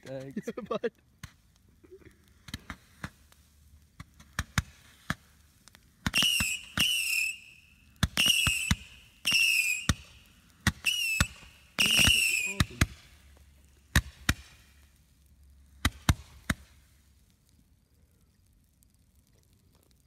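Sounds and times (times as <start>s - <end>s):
fireworks cracking: 0.0s - 20.0s
fireworks popping: 0.0s - 20.0s
fireworks whistling: 2.4s - 15.0s, 15.8s - 17.1s.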